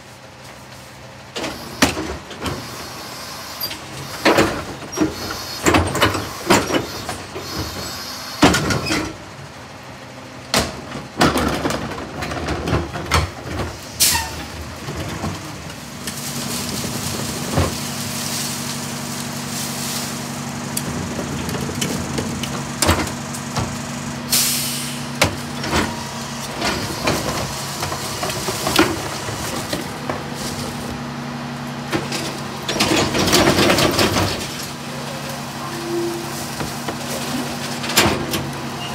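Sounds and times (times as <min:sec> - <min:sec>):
truck engine and hydraulics hum: 0:00.0 - 0:38.9
cart banging against hopper: 0:10.5 - 0:23.8, 0:25.1 - 0:31.0, 0:31.9 - 0:38.9
trash thudding into hopper: 0:10.6 - 0:35.6
air hiss: 0:24.3 - 0:25.2.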